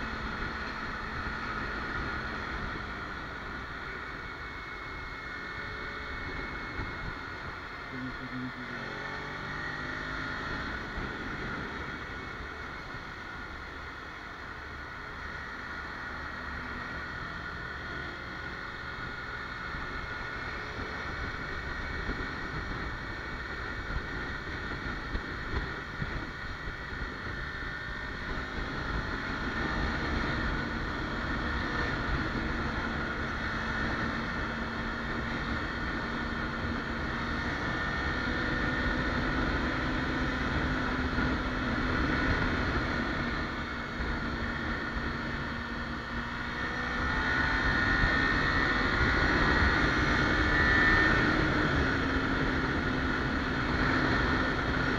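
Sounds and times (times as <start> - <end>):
motorcycle engine running: 0.0 - 54.9.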